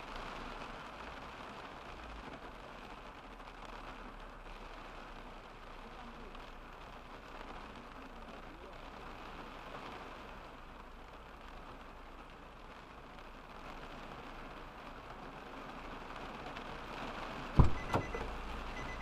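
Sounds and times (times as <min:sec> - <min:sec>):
rain on car roof: 0:00.0 - 0:19.0
heavy thumps: 0:17.6 - 0:18.3
high beeps: 0:17.6 - 0:19.0.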